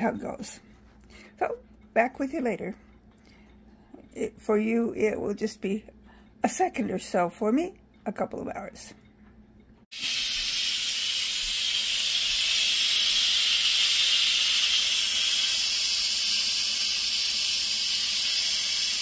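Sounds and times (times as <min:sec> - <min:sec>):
pressure cooker venting steam: 0:09.9 - 0:19.0.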